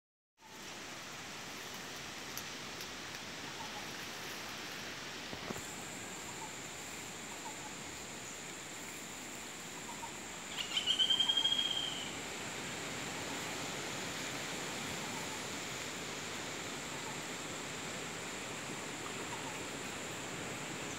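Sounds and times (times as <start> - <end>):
background hiss: 0.4 - 20.9
faint bird chirps: 9.8 - 12.1.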